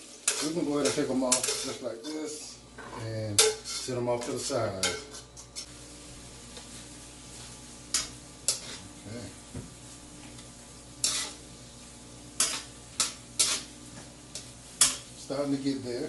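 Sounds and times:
spatula scraping a wok: 0.0s - 5.7s, 6.5s - 15.8s
low steady sizzle: 0.0s - 16.0s.

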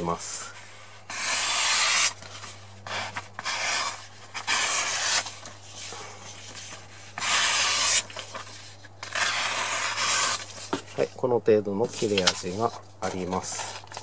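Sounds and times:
knife blade slicing paper: 1.1s - 5.5s, 7.2s - 8.4s, 9.0s - 10.6s.

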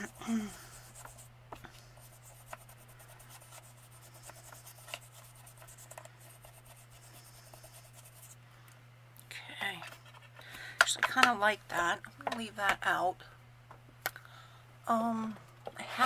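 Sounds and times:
brush rubbing on wood: 0.0s - 8.4s
steady low hum: 0.0s - 16.0s.

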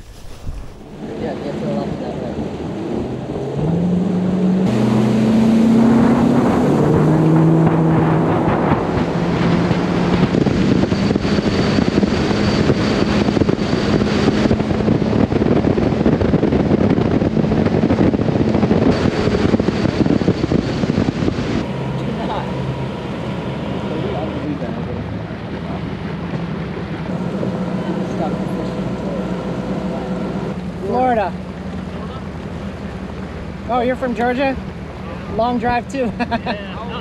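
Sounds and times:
wind buffeting microphone: 0.0s - 36.3s
outboard motor accelerating: 0.0s - 37.0s
water rushing past hull: 0.0s - 37.0s.

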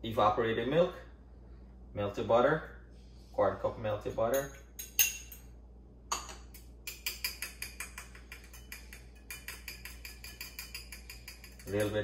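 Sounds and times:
utensil clinking against ceramic bowl: 4.3s - 5.5s, 6.1s - 12.0s.

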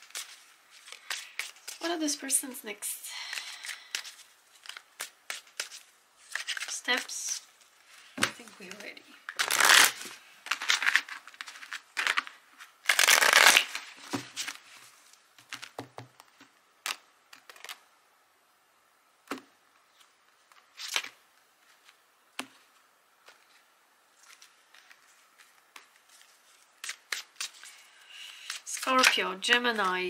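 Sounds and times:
cards being shuffled: 0.0s - 1.9s, 3.3s - 17.8s, 19.3s - 30.0s.

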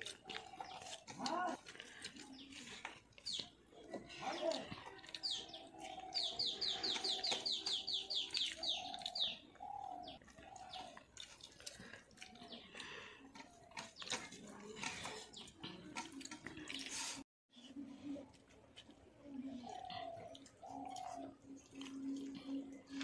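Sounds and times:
bird chirping: 4.3s - 11.0s
dove cooing: 6.0s - 11.0s, 19.4s - 23.0s.

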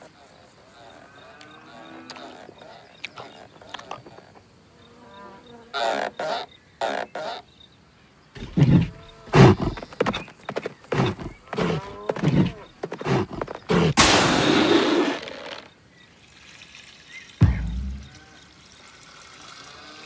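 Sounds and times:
heavy thuds with grunting calls: 8.4s - 14.6s, 17.4s - 18.2s
loud rushing whoosh: 17.4s - 18.2s.

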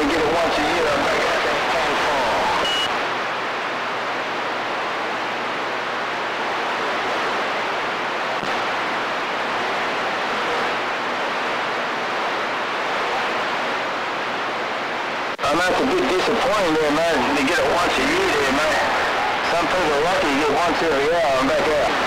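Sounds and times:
radio static hiss: 0.0s - 22.0s
short high beep: 2.6s - 2.9s.

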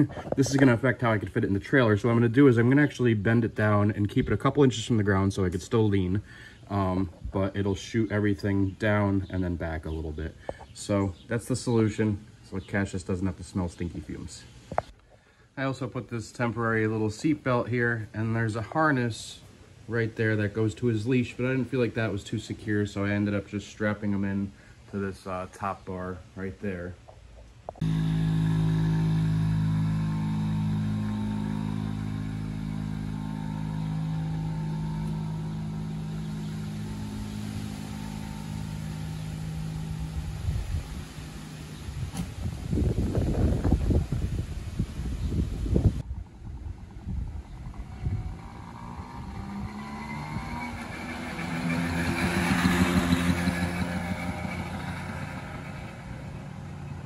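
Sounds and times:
small two-stroke scooter engine: 27.8s - 42.3s, 45.8s - 57.0s.

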